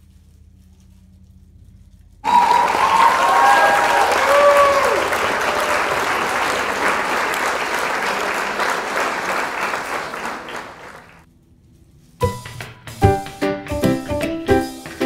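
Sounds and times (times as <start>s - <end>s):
applause: 2.2s - 11.2s
music: 12.0s - 15.0s.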